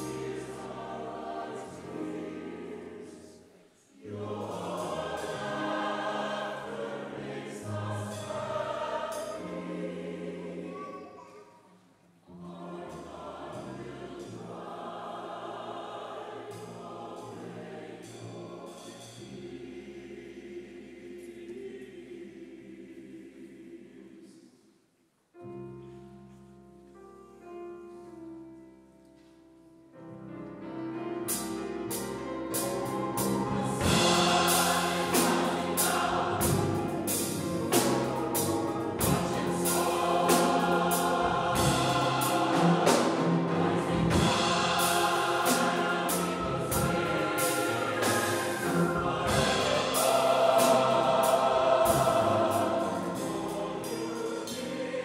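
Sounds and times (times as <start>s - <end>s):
gospel choir singing: 0.0s - 11.2s, 11.8s - 24.8s, 31.2s - 55.0s
piano: 0.0s - 24.6s, 25.3s - 55.0s
drum kit: 31.3s - 54.0s.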